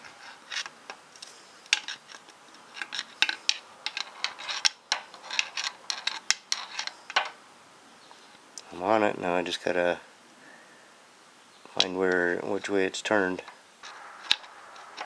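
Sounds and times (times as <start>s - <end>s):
screwdriver clicking and scraping metal: 0.5s - 7.2s.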